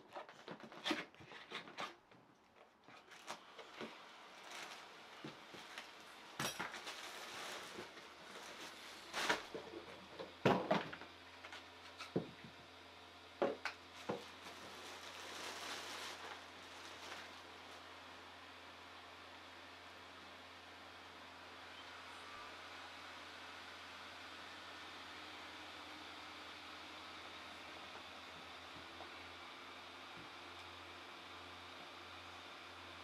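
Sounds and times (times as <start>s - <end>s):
packaging rustling: 6.6s - 9.5s, 14.0s - 17.8s.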